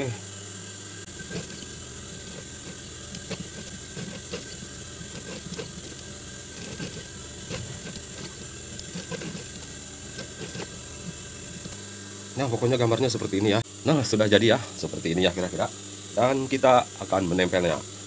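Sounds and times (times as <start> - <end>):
sewing machine motor hum: 0.0 - 13.5.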